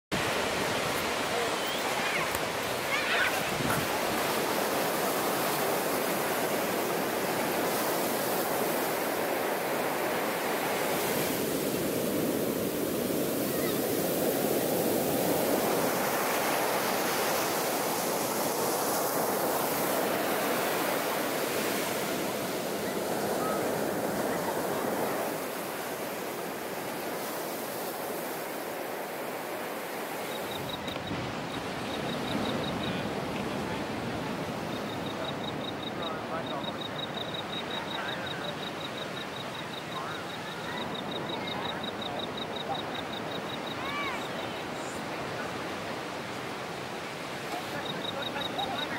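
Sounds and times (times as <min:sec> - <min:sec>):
ocean waves breaking: 0:00.1 - 0:48.9.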